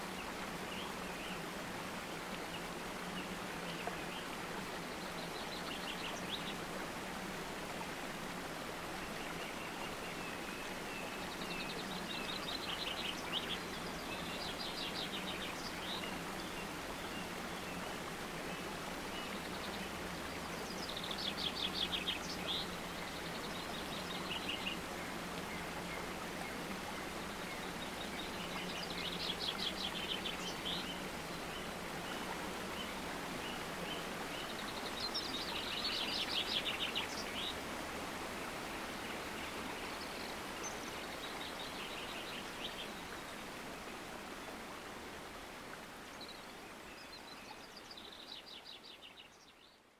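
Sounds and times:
rushing water: 0.0s - 49.9s
songbirds trilling: 9.0s - 37.9s.

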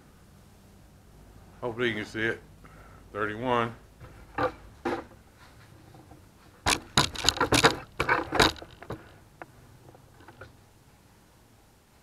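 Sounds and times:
metallic clinks and knocks: 6.0s - 9.1s.

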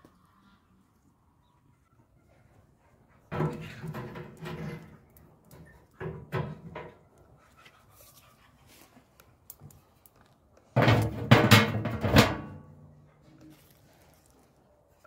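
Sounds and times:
metal lid clattering: 10.8s - 12.6s.

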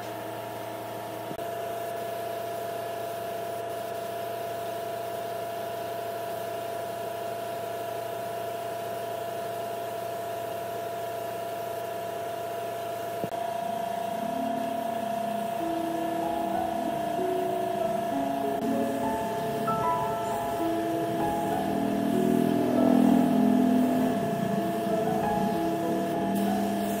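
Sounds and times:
music: 13.3s - 27.0s.

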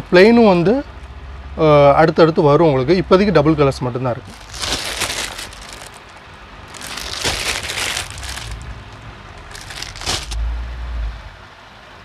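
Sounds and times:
plastic bag crinkling: 4.2s - 10.4s.

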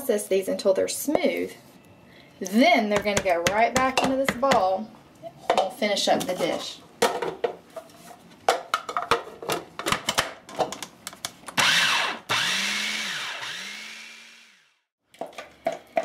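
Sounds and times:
food processor motor: 11.6s - 14.9s.

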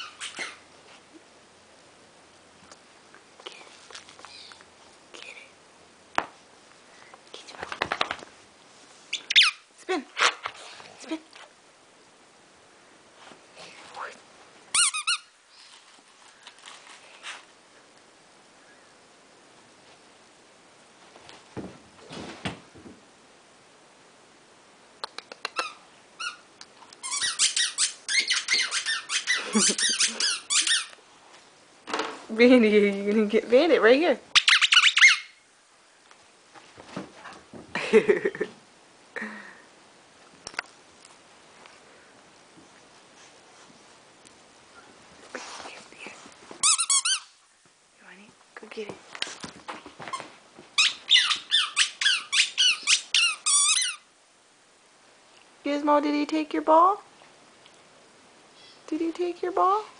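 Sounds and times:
squeaky toy squeaks: 0.0s - 0.6s, 9.1s - 9.6s, 14.7s - 15.3s, 27.0s - 31.0s, 34.4s - 35.4s, 46.6s - 47.3s, 50.8s - 54.0s.

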